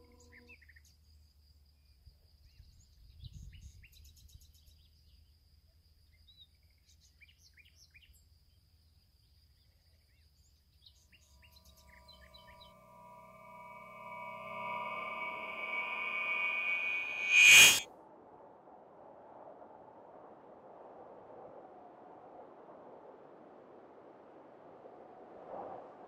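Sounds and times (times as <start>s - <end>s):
soft sustained music tones: 12.1s - 17.8s
low rumble: 12.6s - 17.8s.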